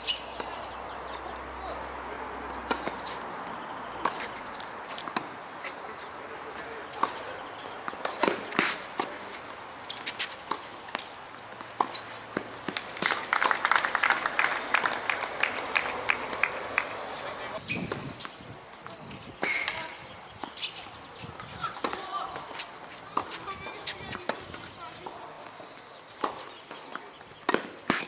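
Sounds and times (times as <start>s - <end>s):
shoes scuffing on court: 0.1s - 13.3s, 15.6s - 28.0s
tennis ball bouncing: 0.2s - 28.0s
tennis racket striking ball: 6.9s - 9.4s, 27.5s - 28.0s.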